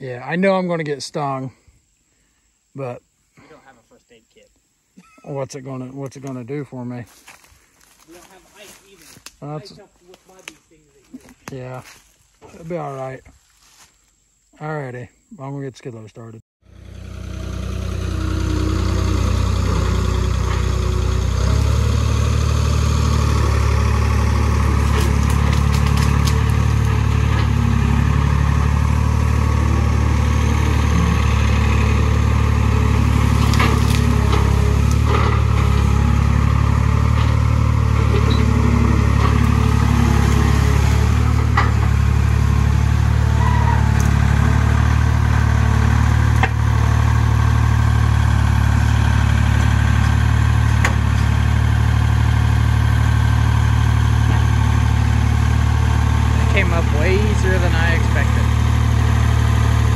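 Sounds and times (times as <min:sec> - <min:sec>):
skid loader engine running: 0:16.6 - 0:59.9
knocks and clanks: 0:37.1 - 0:42.2.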